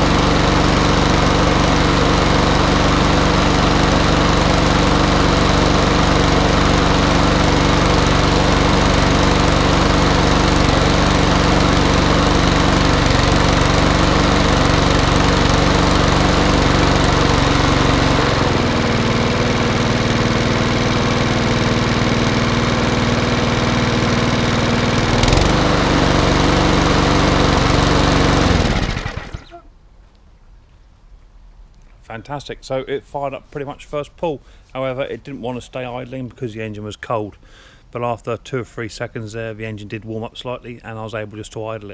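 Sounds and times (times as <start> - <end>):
lawnmower engine running: 0.0 - 29.6.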